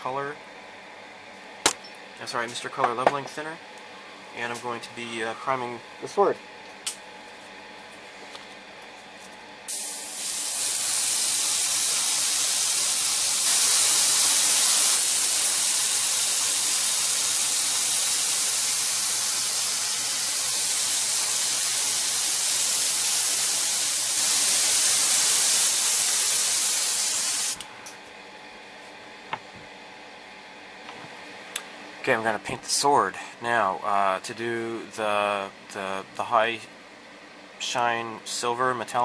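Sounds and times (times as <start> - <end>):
airbrush hissing: 9.7 - 27.6.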